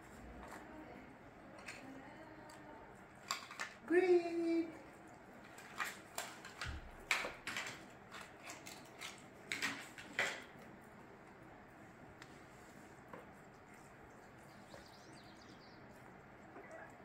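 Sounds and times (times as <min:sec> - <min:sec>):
cats chewing and licking: 0:04.7 - 0:17.0.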